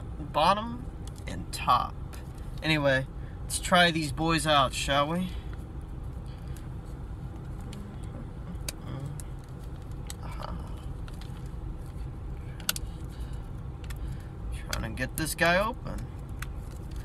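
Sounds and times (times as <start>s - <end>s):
low rumble inside car: 0.0s - 17.0s.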